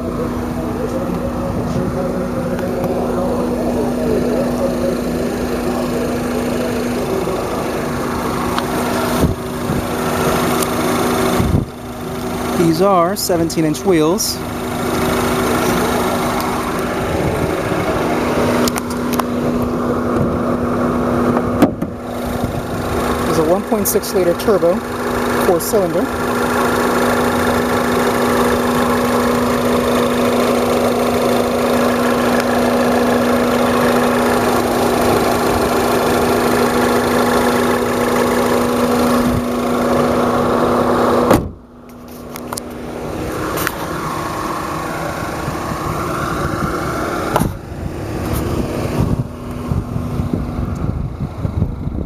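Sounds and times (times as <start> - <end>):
car engine idling: 0.0 - 52.0
sharp thump: 41.2 - 41.6.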